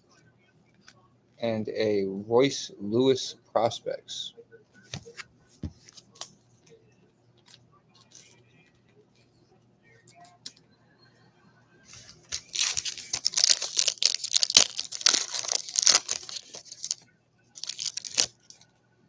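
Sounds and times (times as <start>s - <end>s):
wrapper tearing and crinkling: 12.3s - 17.0s, 17.6s - 18.6s.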